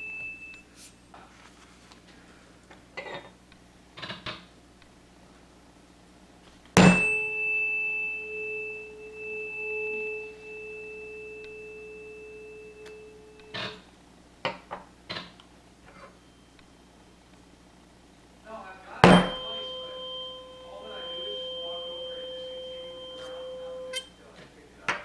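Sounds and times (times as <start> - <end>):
tuning fork ringing: 0.0 - 1.1, 6.8 - 13.9, 18.5 - 25.0.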